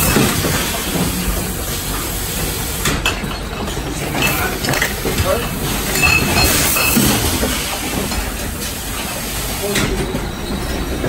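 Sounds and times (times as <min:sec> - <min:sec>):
machine hiss and clatter: 0:00.0 - 0:11.0
glass bottles clinking: 0:03.0 - 0:08.2.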